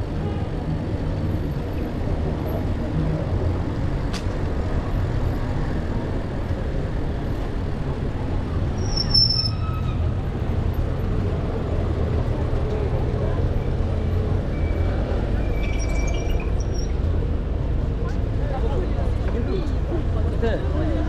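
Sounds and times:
city street traffic: 0.0 - 21.0
high-pitched squeal: 8.8 - 10.0.

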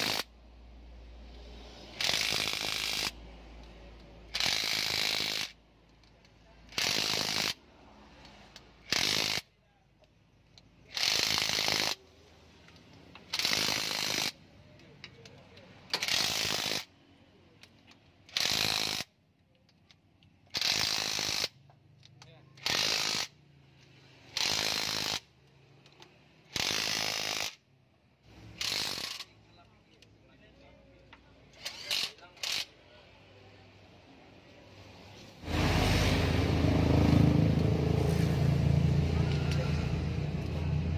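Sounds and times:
ratchet wrench clicking: 0.0 - 0.3, 1.4 - 7.6, 8.2 - 12.0, 12.6 - 17.0, 17.6 - 27.6, 28.4 - 29.4, 31.5 - 32.8
impact wrench hammering: 1.9 - 3.2.

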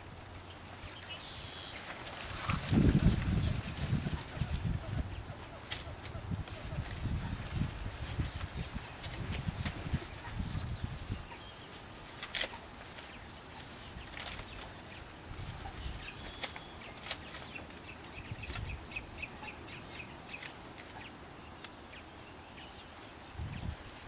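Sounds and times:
wind buffeting microphone: 2.2 - 11.6, 23.2 - 24.0.

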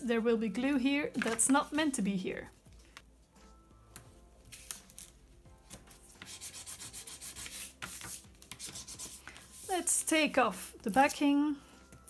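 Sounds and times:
hand rubbing tape on paper: 5.7 - 10.1.

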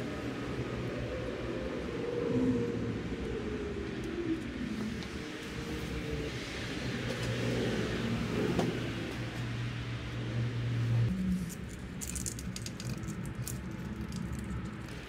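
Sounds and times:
rustling of wiring: 11.2 - 15.0.

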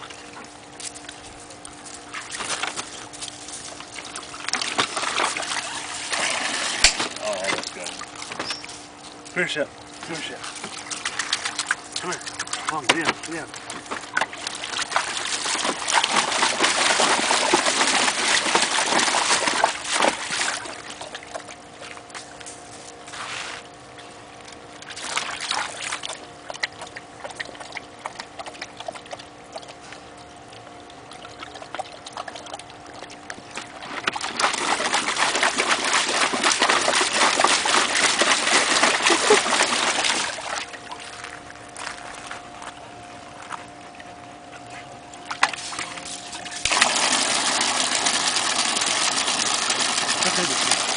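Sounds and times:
dog splashing in water: 2.0 - 8.7, 10.3 - 22.0, 24.8 - 29.8, 31.1 - 42.3, 45.2 - 50.9.

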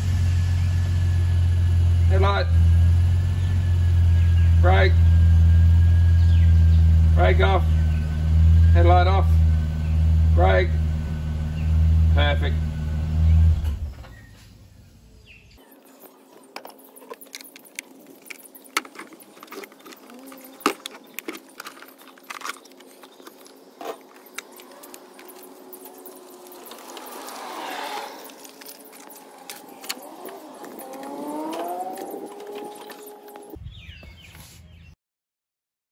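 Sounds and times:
metal hand tools clinking: 17.1 - 27.4.

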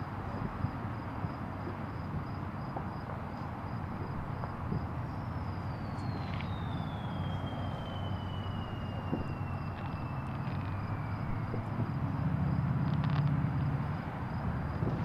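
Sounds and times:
crickets chirping: 0.0 - 15.0
highway traffic rumble: 0.0 - 15.0
high whistle falling in pitch: 5.2 - 12.0.

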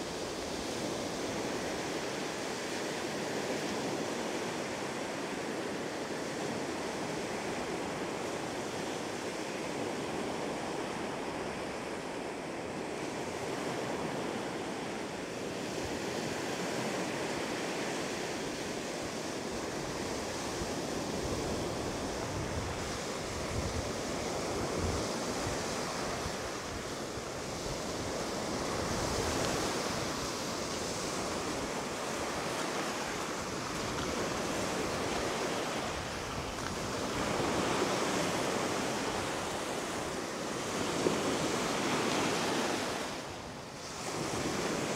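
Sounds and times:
wind rumble on microphone: 0.0 - 44.9
waves breaking on pebbly shore: 12.6 - 44.9.

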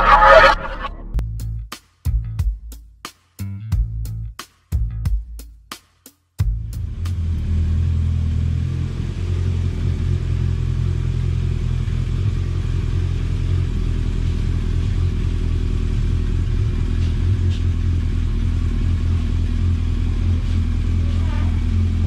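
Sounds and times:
motorcycle engine idling: 6.4 - 22.0.

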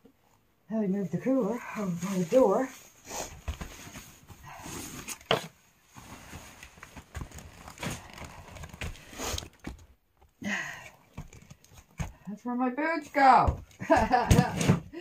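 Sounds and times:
rustling: 1.1 - 10.0
knocks and thumps: 13.4 - 15.0.

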